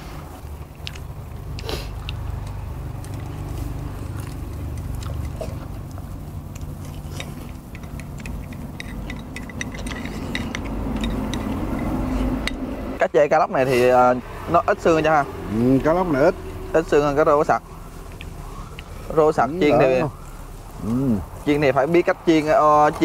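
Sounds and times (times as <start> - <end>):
people chewing: 0.0 - 13.0, 14.8 - 23.0
chopsticks clicking on bowls: 0.8 - 12.7.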